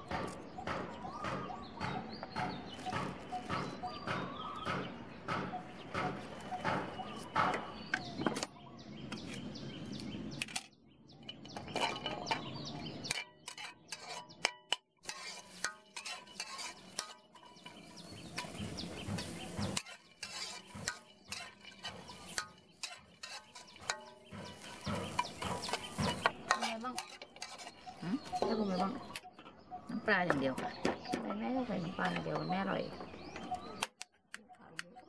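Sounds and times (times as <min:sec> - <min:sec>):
metal spatula scraping a wok: 0:11.6 - 0:28.8.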